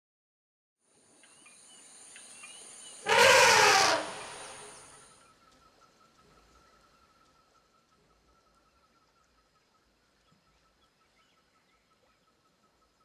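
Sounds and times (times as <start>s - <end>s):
high insect drone: 1.9s - 5.1s
elephant trumpeting: 3.0s - 4.8s.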